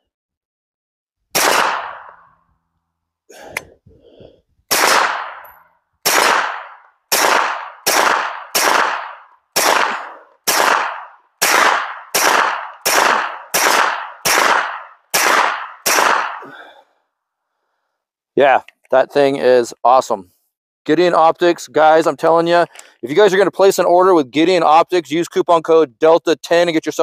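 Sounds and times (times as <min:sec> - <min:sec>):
suppressed pistol shots: 0:01.3 - 0:02.4, 0:04.7 - 0:16.5.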